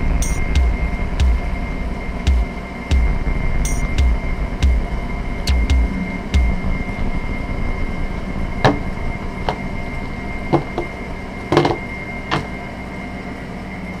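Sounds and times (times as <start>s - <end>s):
steady background hum: 0.0s - 14.0s
objects knocking on tabletop: 10.5s - 10.9s, 11.5s - 12.5s.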